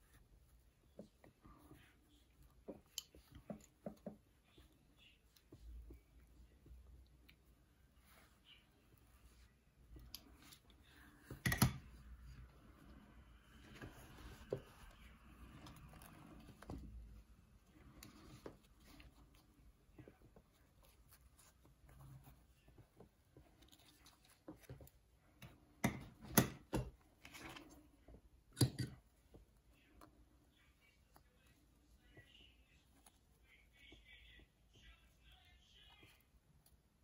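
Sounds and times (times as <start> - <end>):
cloth rustling: 7.4 - 25.1.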